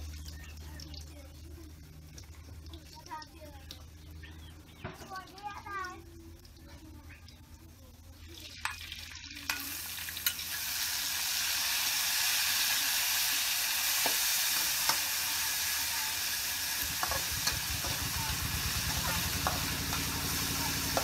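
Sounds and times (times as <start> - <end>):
food sizzling in hot oil: 0.0 - 21.0
metal spatula scraping wok: 16.3 - 21.0.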